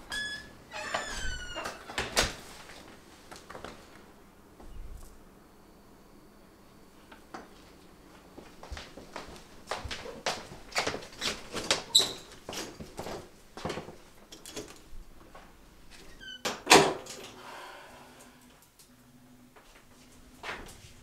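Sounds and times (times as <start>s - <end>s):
door squeak: 0.0s - 2.0s, 11.9s - 12.3s, 16.1s - 16.5s
footsteps: 7.6s - 11.8s.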